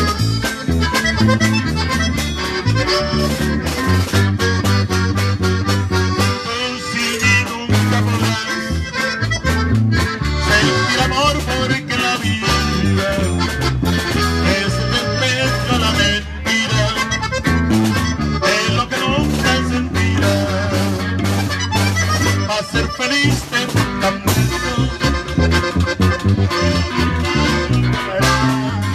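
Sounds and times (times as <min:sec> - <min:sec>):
accordion melody: 0:00.0 - 0:28.9
electric bass line: 0:00.0 - 0:28.9
strummed guitar: 0:00.0 - 0:28.9.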